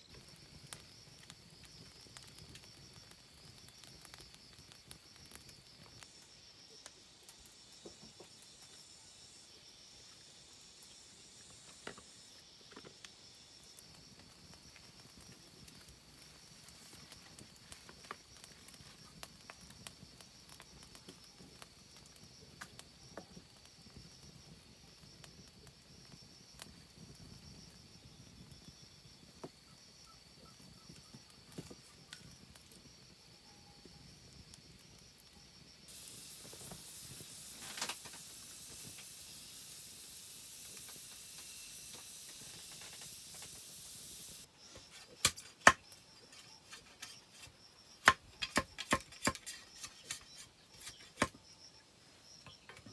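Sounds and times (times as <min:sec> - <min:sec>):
wood fire crackling: 0:00.0 - 0:51.8
steady hiss: 0:00.0 - 0:52.9
machete chopping bamboo: 0:45.2 - 0:45.8, 0:48.0 - 0:50.2.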